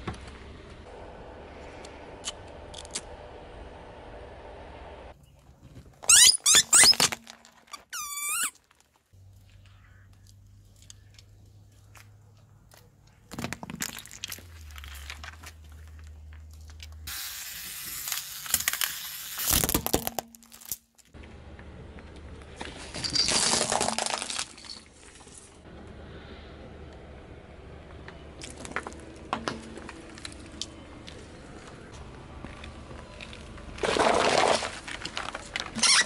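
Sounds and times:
low steady hum: 0:00.0 - 0:05.9
high squeaks: 0:06.0 - 0:08.6, 0:35.8 - 0:36.0
balls crushed under car tyre: 0:13.2 - 0:17.0, 0:22.4 - 0:24.8, 0:33.2 - 0:35.8.

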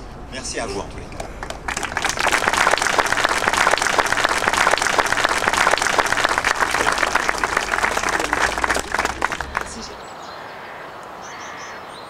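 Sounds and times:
crowd applauding: 0:01.2 - 0:10.1.

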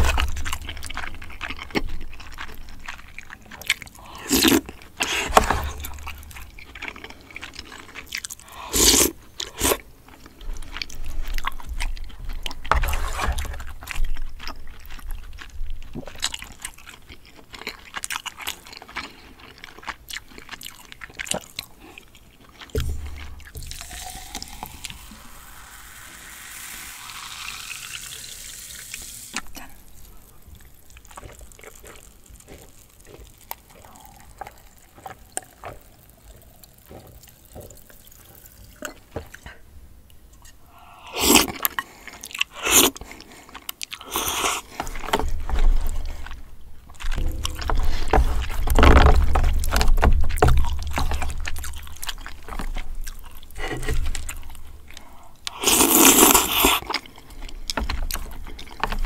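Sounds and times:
wet chewing: 0:00.0 - 0:25.5, 0:28.9 - 0:59.0
fizzy drink pouring into glass: 0:23.6 - 0:29.4
loud slurps: 0:40.7 - 0:41.8, 0:42.4 - 0:43.2, 0:44.0 - 0:44.8, 0:55.5 - 0:56.9.

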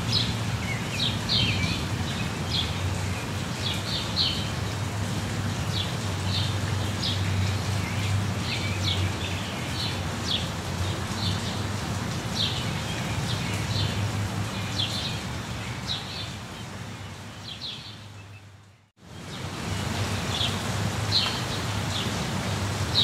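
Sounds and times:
steady rain: 0:00.0 - 0:23.0.

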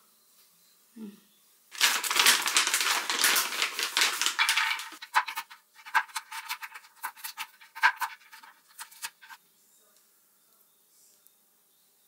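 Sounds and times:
packaging crinkling: 0:01.7 - 0:09.4.

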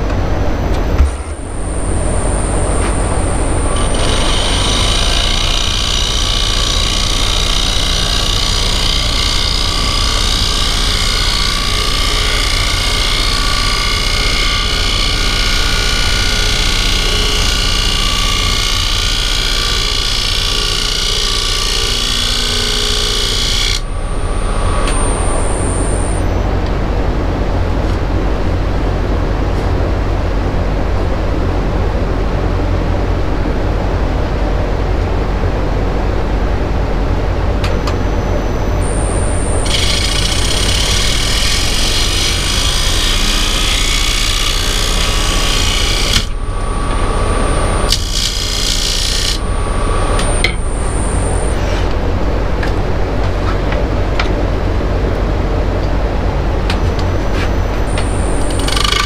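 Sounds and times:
tool cutting spinning wood: 0:00.9 - 0:26.4, 0:38.8 - 0:51.9, 0:57.8 - 0:59.0
wood lathe motor hum: 0:01.3 - 0:26.5, 0:38.8 - 0:51.6, 0:57.7 - 0:59.0.

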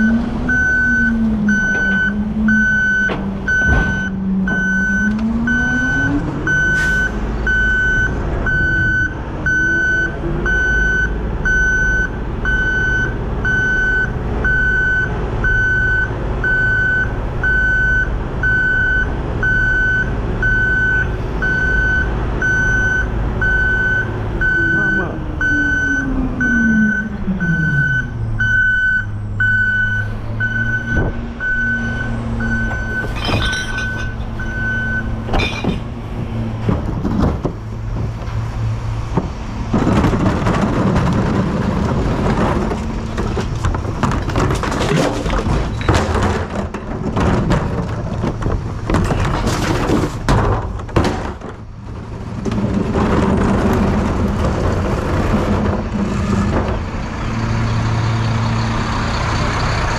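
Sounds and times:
truck reversing alarm beeps: 0:00.0 - 0:35.8
mechanical clatter with thunks: 0:02.9 - 0:05.2, 0:32.6 - 0:57.0
truck engine idling: 0:50.1 - 0:59.9.

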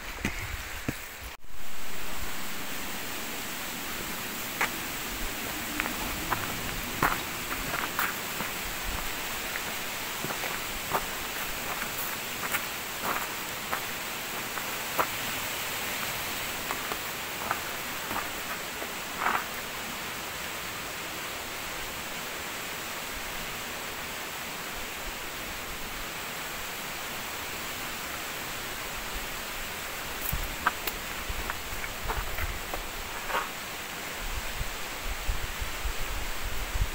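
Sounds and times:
small waterfall rushing: 0:00.0 - 0:36.9.

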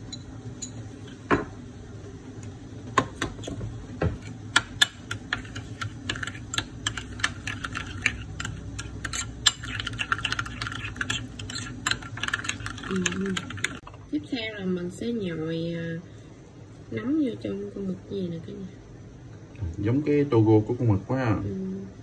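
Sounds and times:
utensil clicking against bowl: 0:04.5 - 0:13.8.

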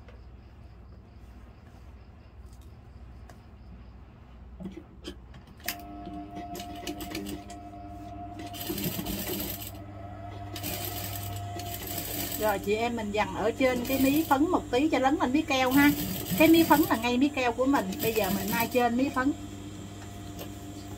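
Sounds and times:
sewing machine stitching: 0:05.7 - 0:07.6, 0:08.4 - 0:19.3.

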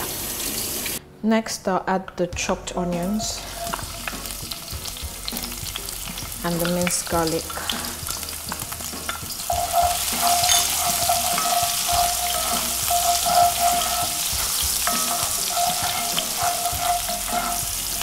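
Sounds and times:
onions sizzling in hot oil: 0:03.1 - 0:18.0
wooden spoon scraping a pan: 0:09.1 - 0:18.0.

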